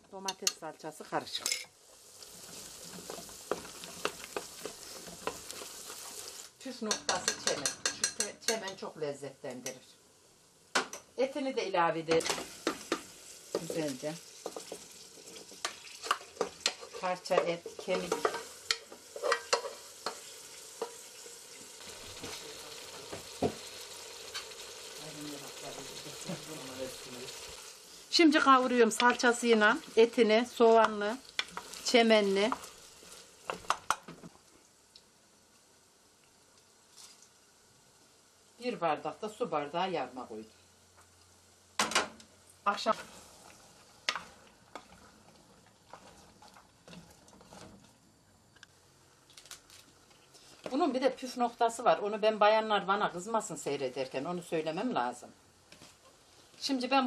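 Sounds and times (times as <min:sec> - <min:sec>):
meat sizzling in a pot: 0:00.0 - 0:57.0
spoon stirring a pot: 0:01.4 - 0:06.2, 0:06.8 - 0:08.8, 0:12.1 - 0:21.0, 0:30.8 - 0:34.3, 0:44.0 - 0:47.8
spoon knocking against pot: 0:06.9 - 0:08.8.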